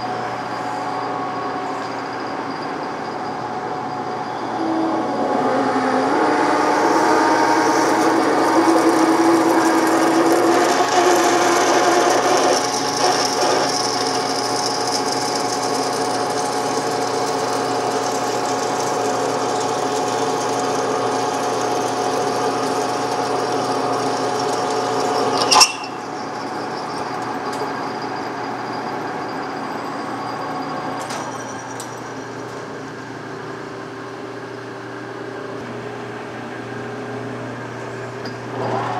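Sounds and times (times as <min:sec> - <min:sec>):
metal lathe gear whine: 0:00.0 - 0:38.9
drill boring into metal: 0:06.6 - 0:29.8.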